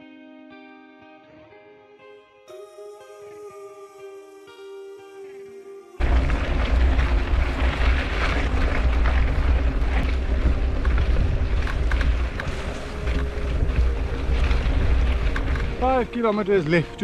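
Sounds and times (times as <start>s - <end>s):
bike clicks and rattles: 6.0s - 16.0s
wind rumbling on microphone: 6.0s - 17.0s.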